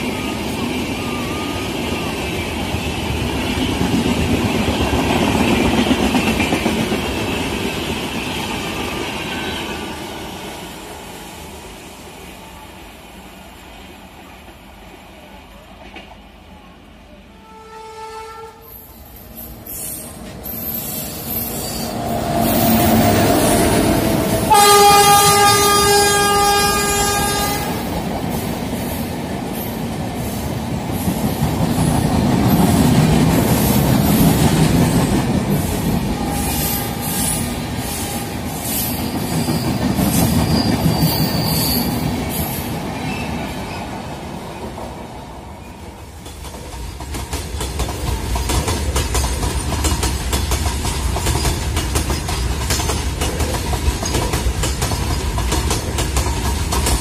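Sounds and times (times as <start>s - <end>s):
train horn blast: 17.3s - 18.9s, 21.9s - 27.9s
train clattering rumble: 46.1s - 57.0s.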